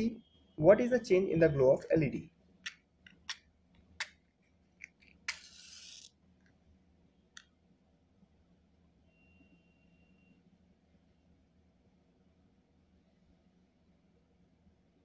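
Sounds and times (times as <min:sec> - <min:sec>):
matchbox clicks: 0:04.8 - 0:06.1
match struck and flaring: 0:05.3 - 0:06.1.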